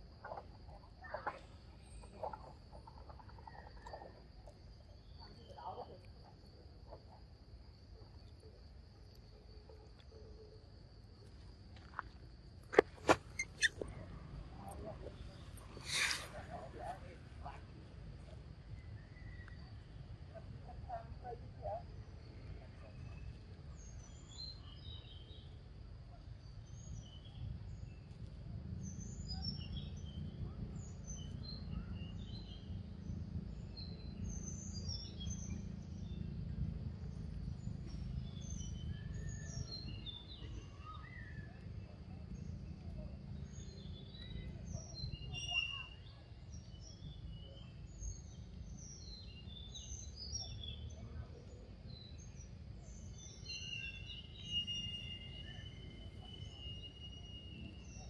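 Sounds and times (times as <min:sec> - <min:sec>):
birds chirping: 0:12.6 - 0:17.6.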